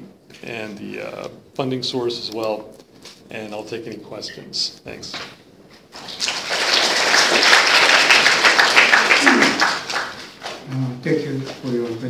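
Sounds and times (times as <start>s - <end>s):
audience applauding: 5.9s - 10.6s.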